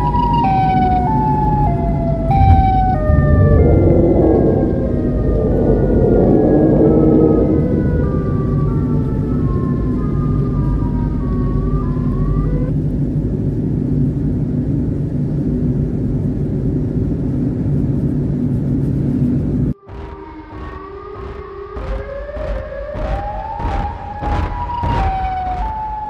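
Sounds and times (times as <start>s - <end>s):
wailing siren tones: 0.0s - 12.7s, 19.7s - 26.0s
vehicle rumbling: 0.0s - 26.0s.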